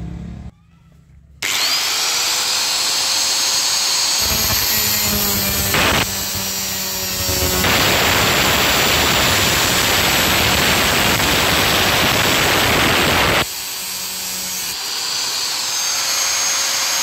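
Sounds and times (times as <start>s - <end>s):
metal grinding on grinder wheel: 1.4s - 13.5s
grinder motor running: 1.4s - 17.0s.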